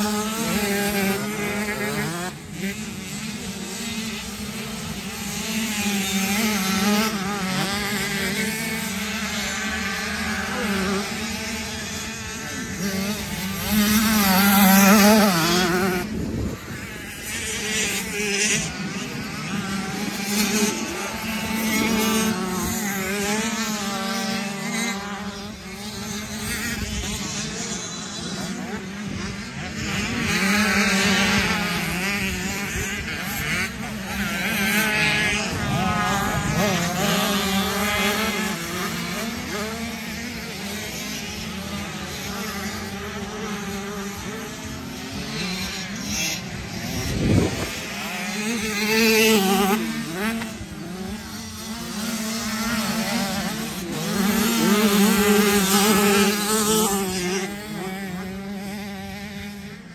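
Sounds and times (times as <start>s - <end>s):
motorcycle engines revving: 0.0s - 59.9s.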